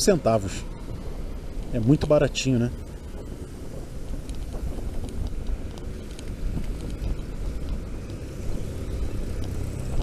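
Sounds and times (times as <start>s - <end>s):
low wind on microphone: 0.0s - 10.0s
road rumble: 0.0s - 10.0s.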